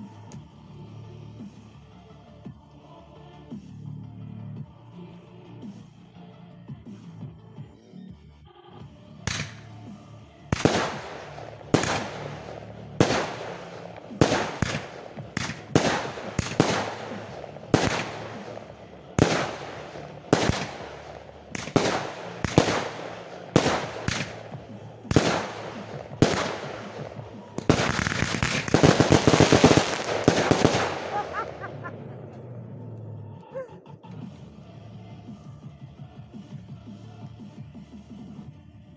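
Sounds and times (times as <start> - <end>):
firework shells bursting: 9.3 - 9.8, 10.5 - 31.9
rapid firework crackling: 9.3 - 9.8, 10.4 - 32.3.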